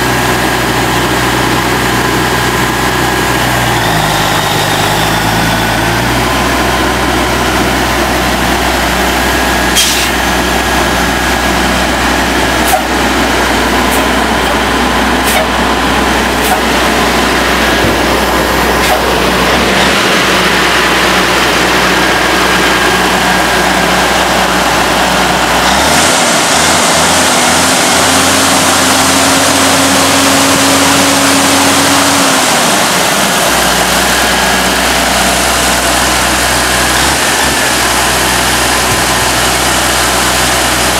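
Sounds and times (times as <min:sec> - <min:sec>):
diesel truck engine idling: 0:00.0 - 0:40.9.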